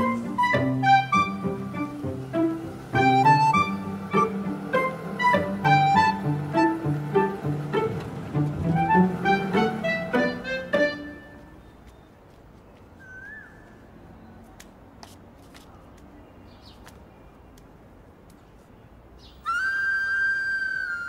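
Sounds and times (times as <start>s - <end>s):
held flute-like note: 0.0s - 11.4s, 19.4s - 21.0s
plucked and bowed strings: 0.0s - 11.4s
soft footstep taps: 11.3s - 13.0s, 14.4s - 18.8s.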